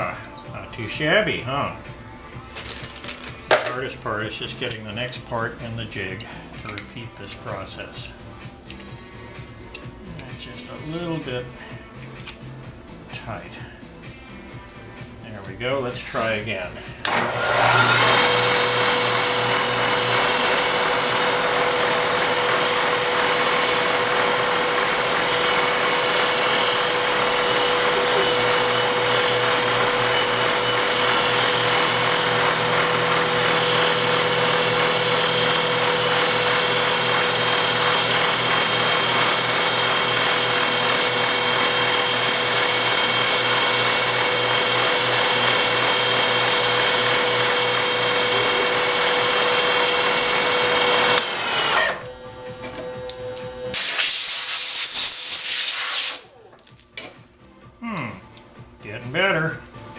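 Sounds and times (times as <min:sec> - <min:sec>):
milling machine cutting metal: 0:17.0 - 0:54.4.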